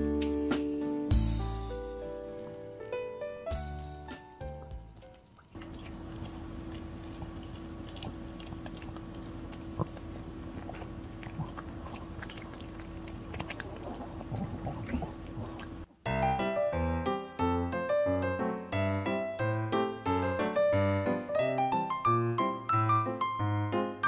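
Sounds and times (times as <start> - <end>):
low room hum: 4.4 - 16.0
dog chewing: 4.5 - 15.9.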